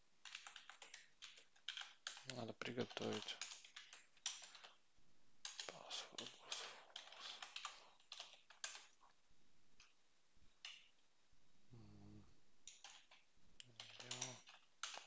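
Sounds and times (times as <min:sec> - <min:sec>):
keyboard typing: 0:00.2 - 0:04.8, 0:05.4 - 0:09.2, 0:12.6 - 0:15.0.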